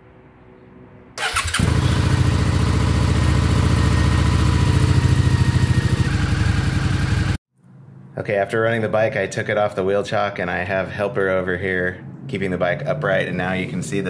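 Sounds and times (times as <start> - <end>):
motorcycle engine starting and idling: 1.2 - 7.4.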